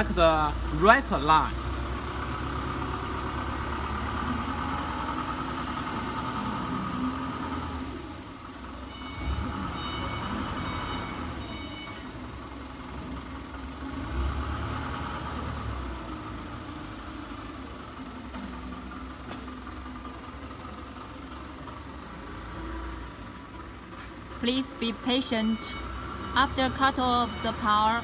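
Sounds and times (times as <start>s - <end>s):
factory machinery rumble: 0.0s - 28.0s
short electronic beeps: 8.9s - 12.1s, 25.4s - 26.0s.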